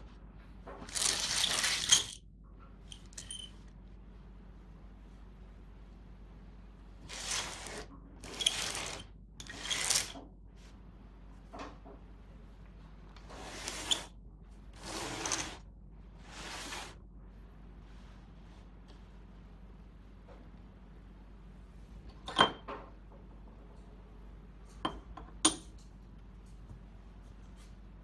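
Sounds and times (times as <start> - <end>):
puzzle rings sliding and scraping: 7.0 - 10.2, 13.2 - 14.1, 14.8 - 15.6, 16.2 - 17.0.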